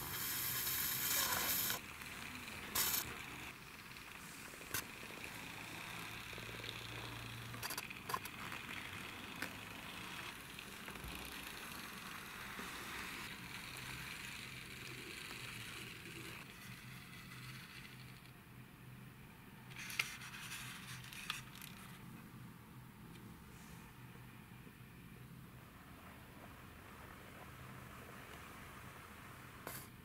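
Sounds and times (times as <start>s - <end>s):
toy car wheels rolling on wood: 0.0s - 18.4s, 19.7s - 22.2s.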